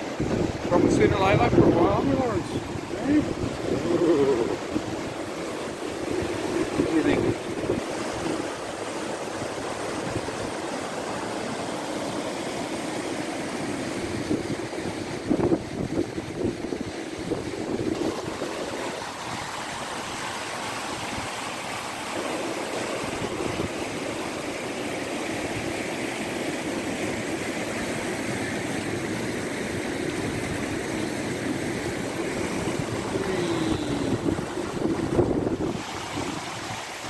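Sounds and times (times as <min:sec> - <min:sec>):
wind on microphone: 0:00.0 - 0:08.6, 0:13.9 - 0:20.2, 0:30.2 - 0:37.0
river rushing over rapids: 0:00.0 - 0:37.0.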